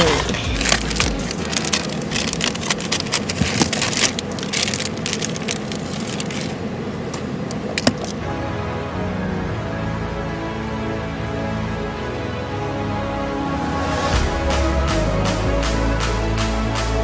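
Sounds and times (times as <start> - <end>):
plastic packaging crinkling: 0.0 - 6.7.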